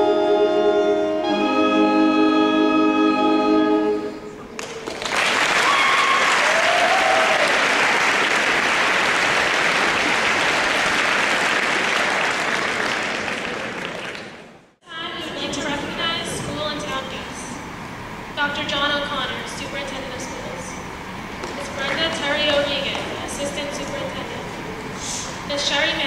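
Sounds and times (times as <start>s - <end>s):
wind band holding chord: 0.0s - 4.5s
audience applauding: 4.6s - 14.7s.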